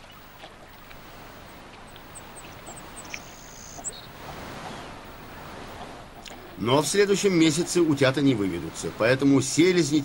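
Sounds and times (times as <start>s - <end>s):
water lapping: 0.0s - 10.0s
wind: 0.0s - 10.0s
high bird chirps: 2.0s - 4.2s.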